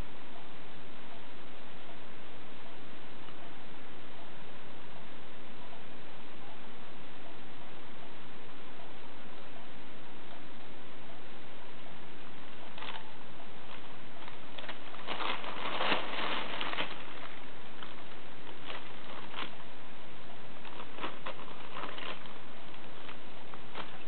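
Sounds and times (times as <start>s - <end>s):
bag rustling and crinkling: 12.8s - 13.1s, 13.7s - 19.6s, 20.6s - 24.0s.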